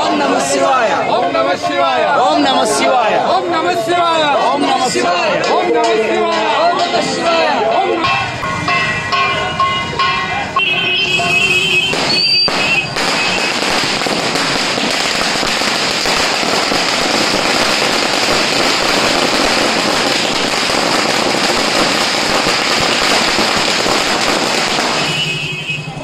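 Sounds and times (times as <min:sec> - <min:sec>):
firecrackers crackling: 0:10.6 - 0:26.0.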